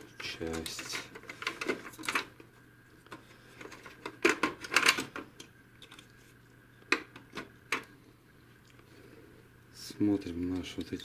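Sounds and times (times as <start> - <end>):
plastic printer parts clicking and rattling: 0.2 - 2.4, 3.1 - 6.0.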